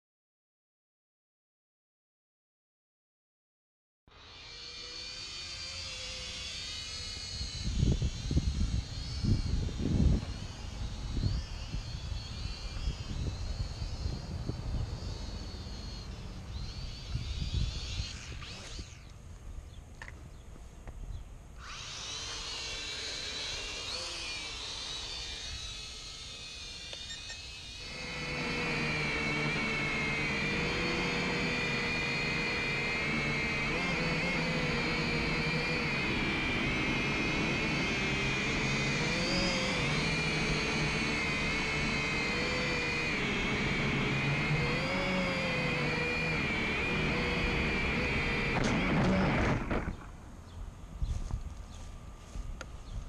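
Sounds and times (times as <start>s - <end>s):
drone propellers whining: 4.1s - 53.0s.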